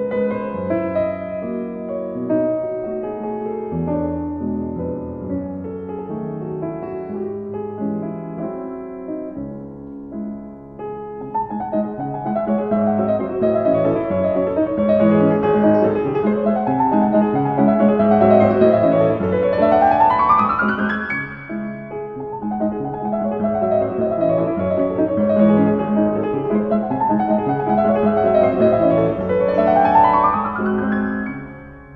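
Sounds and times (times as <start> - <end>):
piano music: 0.0 - 31.9.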